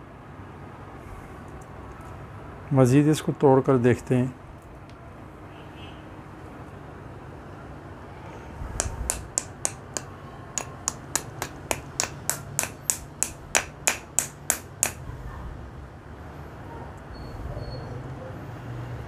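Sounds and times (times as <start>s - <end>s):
small hammer tapping stone: 8.8s - 15.0s.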